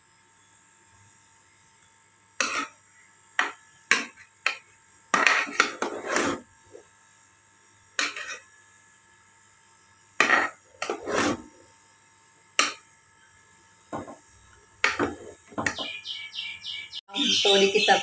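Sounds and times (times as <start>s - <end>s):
metal spoon scraping a pot: 2.4s - 2.8s, 5.2s - 6.8s, 8.0s - 8.5s, 10.2s - 11.5s, 14.8s - 15.9s.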